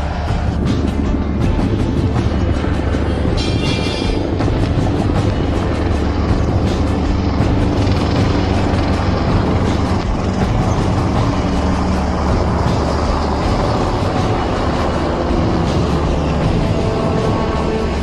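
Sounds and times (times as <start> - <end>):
helicopter rotor and engine: 0.0 - 18.0.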